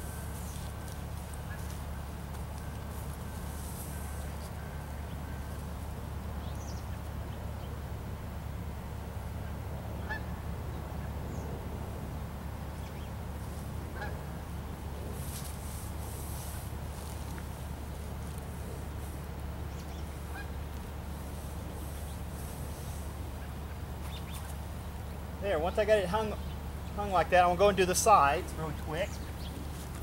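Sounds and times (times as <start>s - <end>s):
steady low hum: 0.0s - 30.0s
honking calls: 9.4s - 11.1s, 13.2s - 14.8s, 17.8s - 29.6s.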